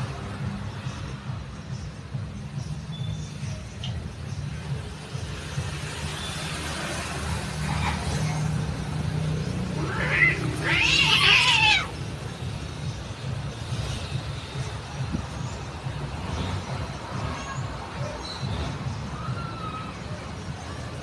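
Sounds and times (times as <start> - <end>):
cat yowling: 9.7 - 12.0.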